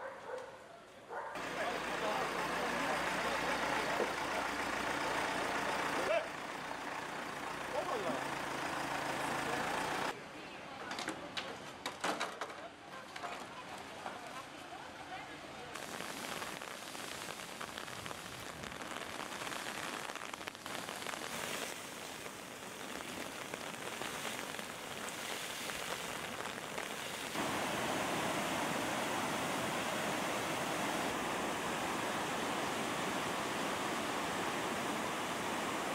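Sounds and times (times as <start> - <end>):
rushing floodwater: 1.4 - 6.4, 7.3 - 10.1, 20.7 - 35.9
heavy rain: 1.4 - 10.1, 15.8 - 35.9
river rushing: 22.9 - 35.9.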